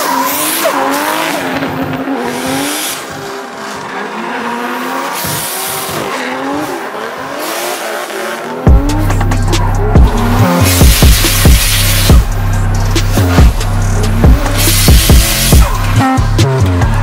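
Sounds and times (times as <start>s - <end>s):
tyres squealing: 0.0s - 12.2s
car engine revving hard: 0.0s - 17.0s.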